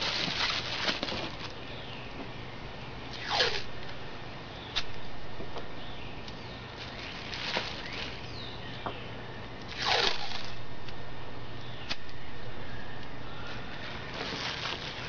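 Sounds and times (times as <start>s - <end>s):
bubble wrap crinkling: 0.0s - 1.6s, 6.8s - 8.5s, 13.8s - 15.0s.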